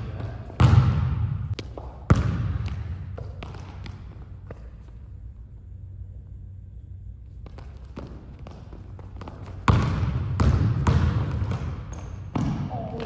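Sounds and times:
basketball bouncing on hardwood: 0:00.0 - 0:04.6, 0:07.4 - 0:13.0.

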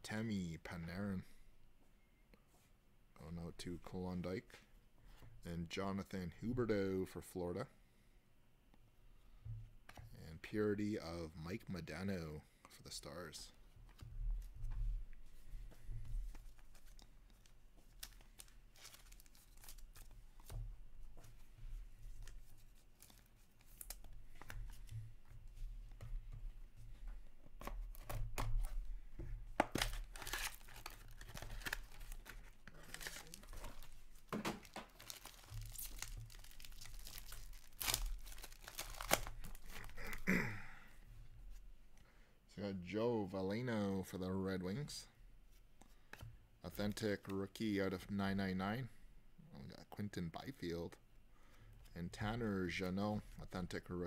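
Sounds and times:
packaging tearing and crinkling: 0:18.0 - 0:20.1, 0:29.7 - 0:33.9, 0:34.6 - 0:40.2.

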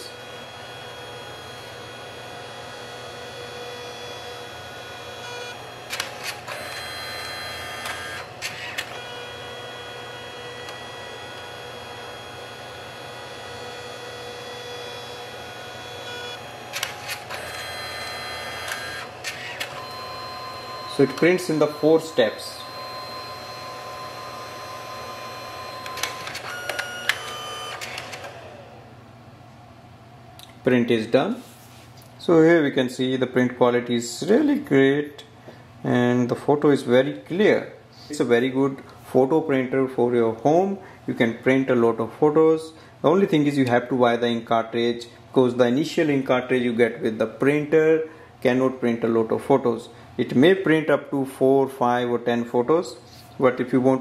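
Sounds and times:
printer motor whirring: 0:00.0 - 0:29.2
printer sharp clicks: 0:05.8 - 0:09.2, 0:16.2 - 0:20.0, 0:25.8 - 0:28.6.

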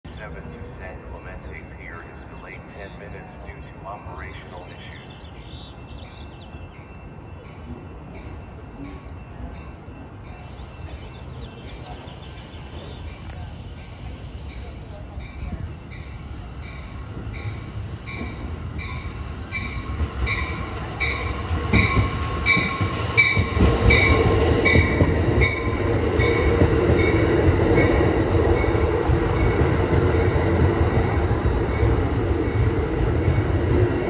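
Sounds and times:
train cars rumbling by: 0:00.1 - 0:34.0
train bell ringing: 0:05.7 - 0:30.5.

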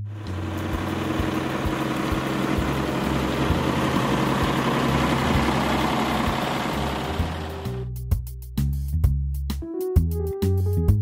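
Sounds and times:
truck engine idling: 0:00.0 - 0:07.9.

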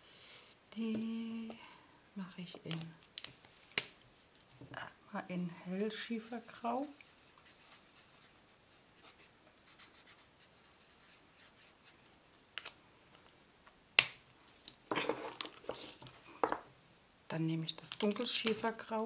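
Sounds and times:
marker scratching on paper: 0:09.0 - 0:11.9
markers clattering: 0:17.8 - 0:18.9.

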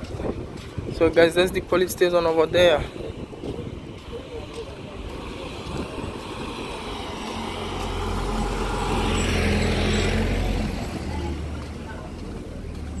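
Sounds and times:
car passing by: 0:03.0 - 0:13.0.

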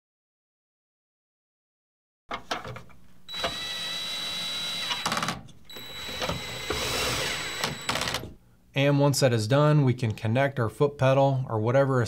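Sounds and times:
drill clicking: 0:03.3 - 0:08.3
drill motor whining: 0:03.3 - 0:08.4.

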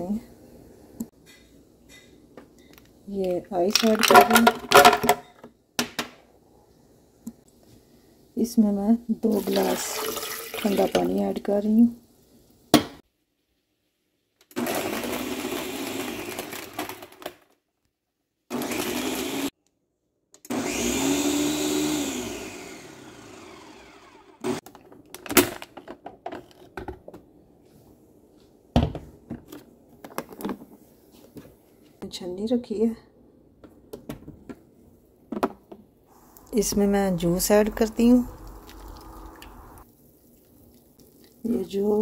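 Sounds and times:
blender crushing ice: 0:14.5 - 0:17.3, 0:18.5 - 0:19.5, 0:20.5 - 0:24.7.

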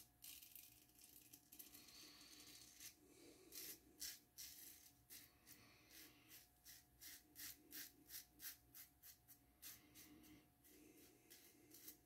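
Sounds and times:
razor scraping beard stubble: 0:00.2 - 0:12.0.

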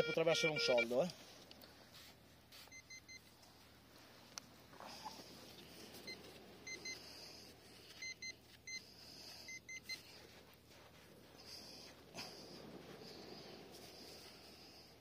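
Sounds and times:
metal detector beeping: 0:00.0 - 0:01.1, 0:02.6 - 0:03.3, 0:06.0 - 0:07.1, 0:07.9 - 0:10.2.

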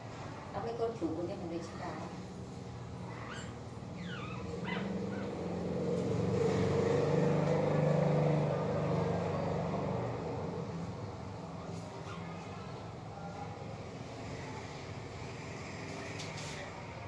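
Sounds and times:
passing vehicle engine hum: 0:04.3 - 0:17.0.

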